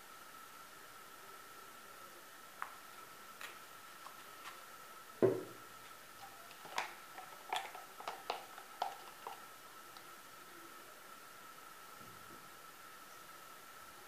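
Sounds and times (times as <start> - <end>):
thump: 5.2 - 5.6.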